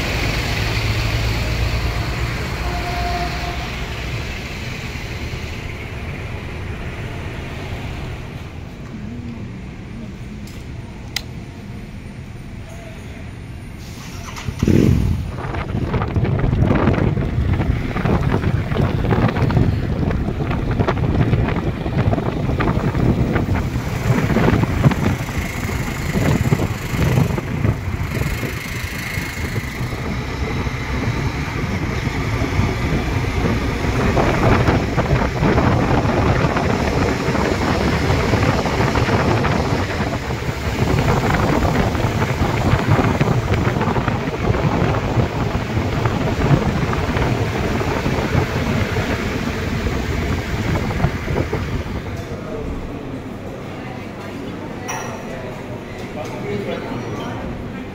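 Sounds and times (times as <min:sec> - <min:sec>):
road noise: 0:00.0 - 0:57.9
wind rushing over microphone: 0:14.1 - 0:53.4
motorcycle engine: 0:23.5 - 0:32.0.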